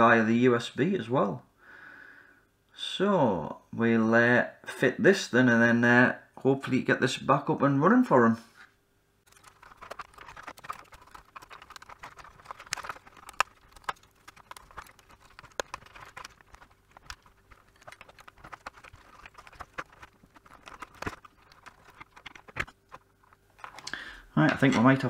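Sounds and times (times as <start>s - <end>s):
cables rustling: 9.3s - 25.0s.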